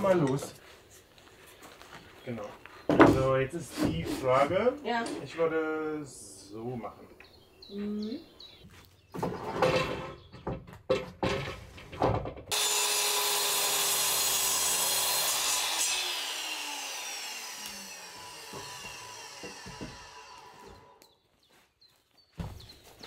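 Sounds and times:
power saw cutting wood: 12.5s - 21.0s.

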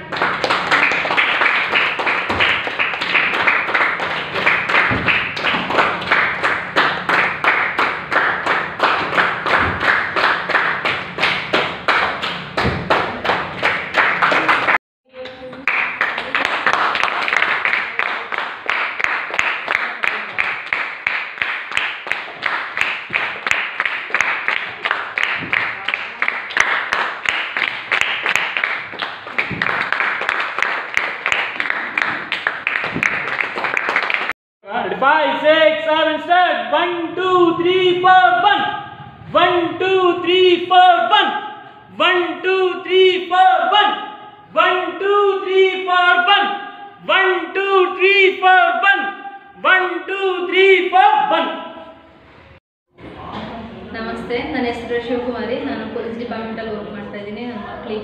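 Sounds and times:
group clapping fast: 0.0s - 34.4s.

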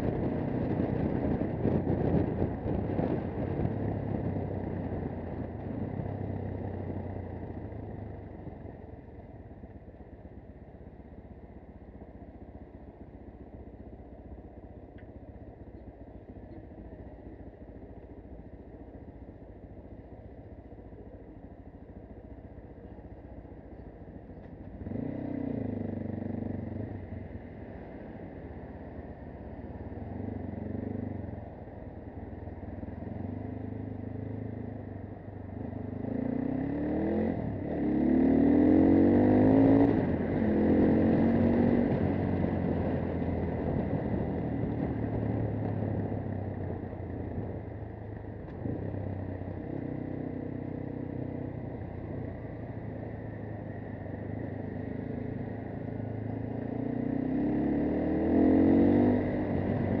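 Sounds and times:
motorcycle engine revving: 24.4s - 27.4s, 32.7s - 60.0s.

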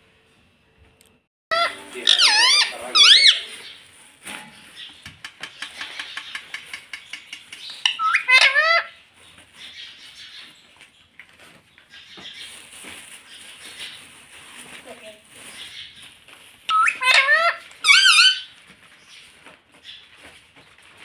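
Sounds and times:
parakeet warbling call: 1.5s - 3.7s, 7.8s - 9.0s, 16.7s - 18.5s
parakeet squawking: 1.5s - 3.8s, 7.6s - 9.0s, 16.7s - 18.5s.

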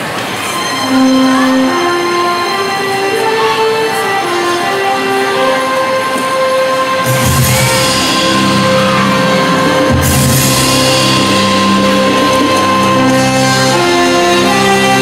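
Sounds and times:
dramatic music with held chords: 0.5s - 15.0s.

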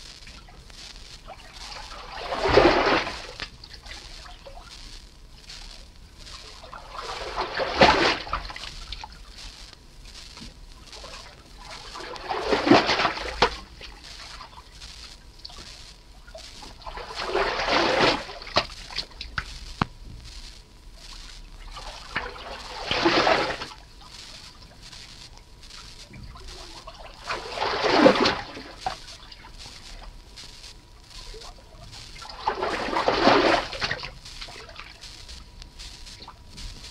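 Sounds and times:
water dripping and splashing: 0.2s - 4.8s, 6.2s - 9.5s, 10.4s - 14.7s, 16.3s - 20.0s, 21.6s - 24.7s, 25.8s - 30.1s, 31.2s - 35.1s.

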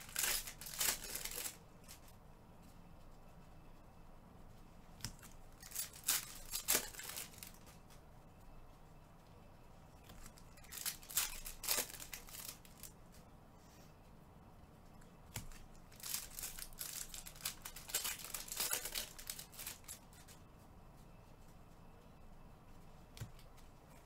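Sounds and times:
wrappers torn and crinkled: 0.0s - 2.0s, 5.0s - 7.6s, 10.1s - 12.9s, 15.3s - 20.4s.

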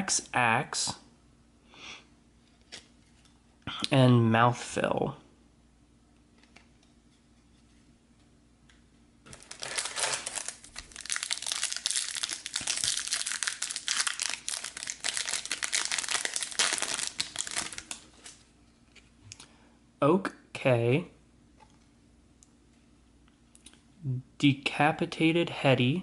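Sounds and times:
foil wrapper crinkling: 9.3s - 18.4s.

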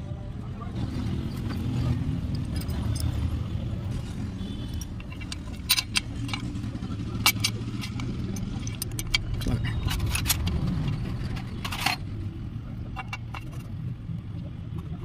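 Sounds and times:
metal gears clinking: 1.2s - 12.2s, 12.9s - 13.8s.

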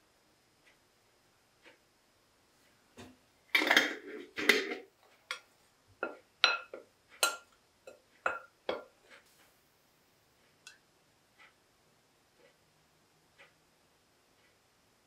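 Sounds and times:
spoon clinking glass bowl: 6.0s - 8.9s.

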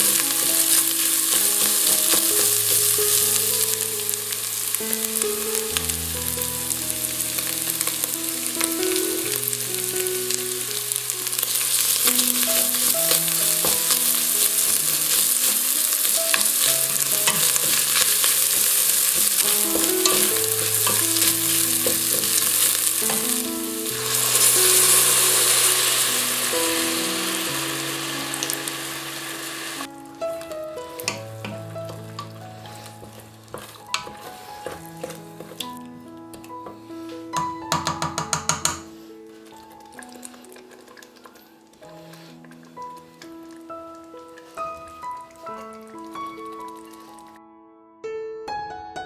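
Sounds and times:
food sizzling in pot: 0.0s - 35.8s, 36.6s - 47.4s
wooden spoon scraping pot: 11.5s - 26.4s, 31.9s - 35.8s.

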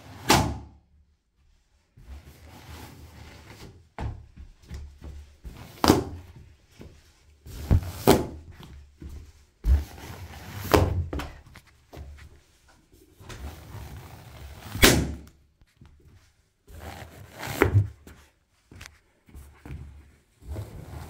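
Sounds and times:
balloons popping: 14.7s - 15.3s.

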